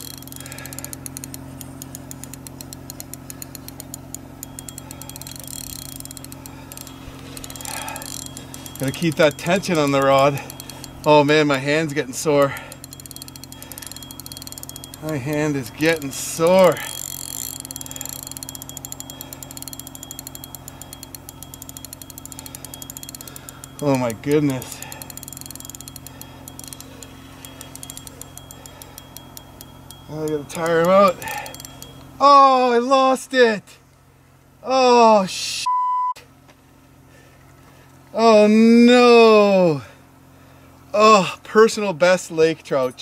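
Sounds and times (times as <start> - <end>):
fishing reel clicking rapidly: 0.0 - 32.0
steady low hum: 0.0 - 38.9.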